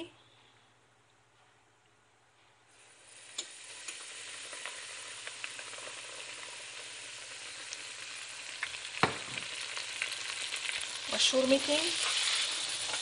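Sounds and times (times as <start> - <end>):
oil sizzling in a pot: 2.7 - 13.0
oil popping: 7.7 - 10.8.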